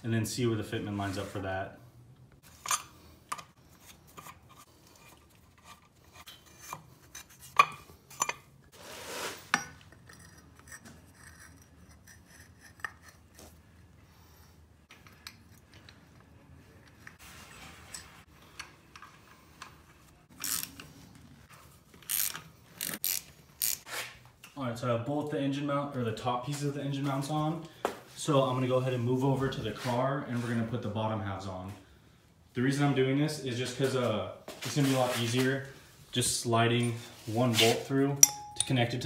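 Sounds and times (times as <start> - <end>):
metal clinks of wrench and bolts: 38.2 - 38.9.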